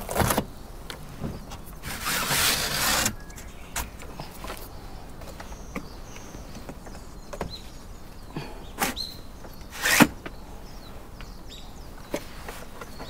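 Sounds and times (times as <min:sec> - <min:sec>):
high bird chirps: 0:03.0 - 0:12.2.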